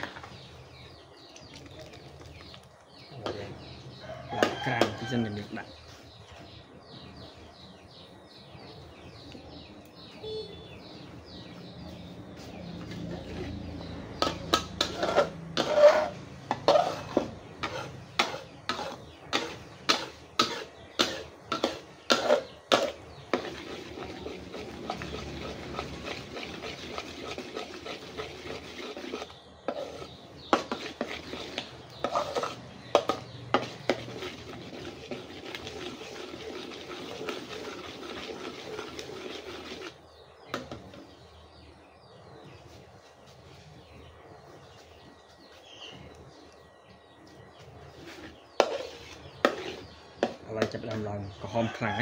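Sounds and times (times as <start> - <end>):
metal spatula scraping a wok: 13.0 - 40.0, 47.9 - 50.4.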